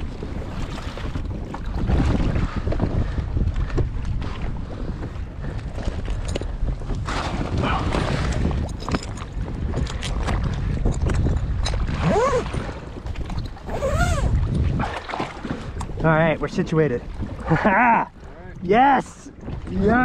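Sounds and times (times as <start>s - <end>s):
sea water lapping: 0.0s - 20.0s
wind buffeting microphone: 0.0s - 20.0s.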